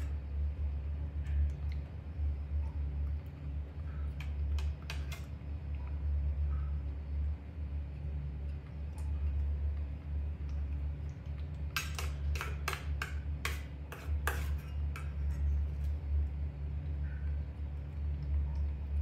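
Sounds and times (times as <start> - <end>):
low steady hum: 0.0 - 19.0
plastic spoon scraping metal bowl: 11.8 - 15.5.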